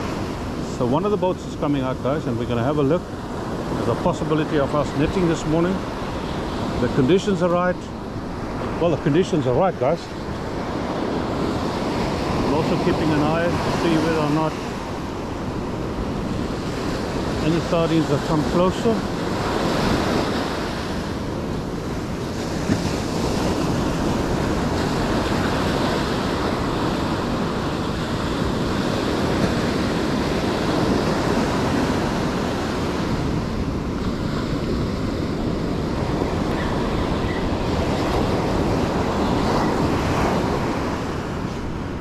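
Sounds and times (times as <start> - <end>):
ocean surf washing: 0.0 - 42.0
wind buffeting microphone: 0.0 - 42.0.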